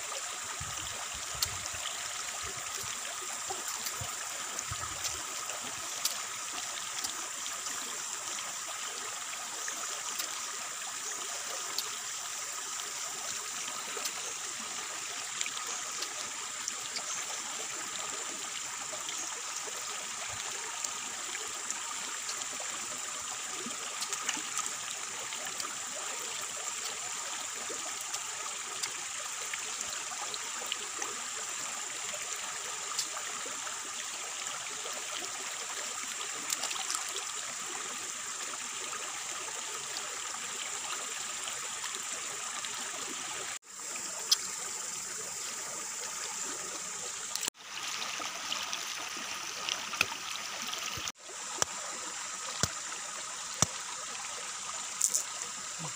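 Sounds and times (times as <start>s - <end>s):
stream rushing: 45.8s - 55.9s.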